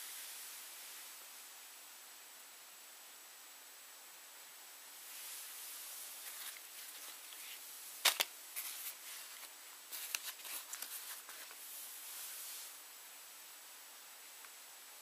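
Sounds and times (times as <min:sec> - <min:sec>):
steady hiss: 0:00.0 - 0:15.0
rustling ticks of swim caps: 0:06.1 - 0:11.7.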